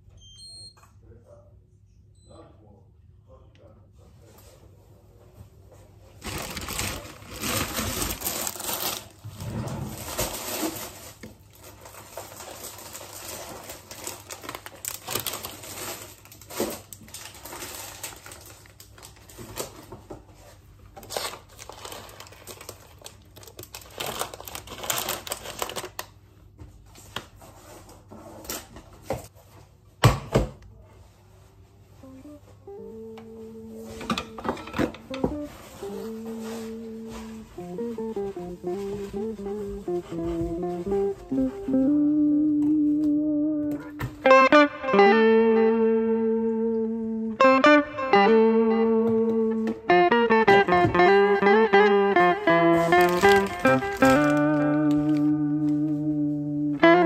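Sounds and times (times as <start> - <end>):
objects rustling: 5.7 - 26.0, 33.6 - 42.0, 49.4 - 56.2.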